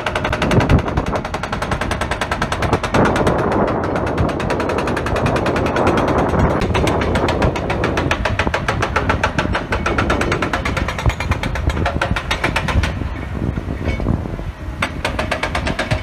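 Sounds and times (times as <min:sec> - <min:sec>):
hydraulic breaker hammering rock: 0:00.0 - 0:13.3, 0:14.8 - 0:16.0
excavator engine running: 0:00.0 - 0:16.0.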